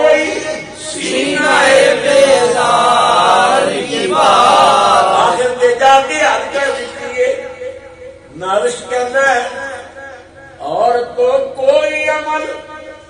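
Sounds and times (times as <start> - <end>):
man chanting into microphone: 0.0 - 10.0.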